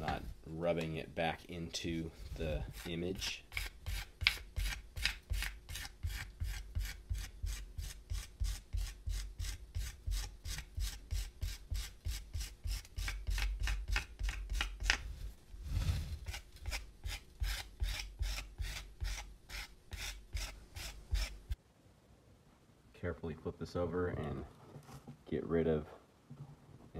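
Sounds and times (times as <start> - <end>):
metal rib scraping clay: 1.8 - 21.6
soft rub on clay: 2.1 - 4.8, 14.2 - 21.5.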